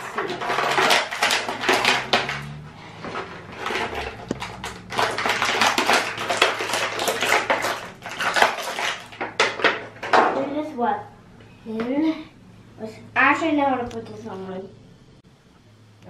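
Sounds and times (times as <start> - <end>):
plastic packaging crinkling: 0.0 - 9.8.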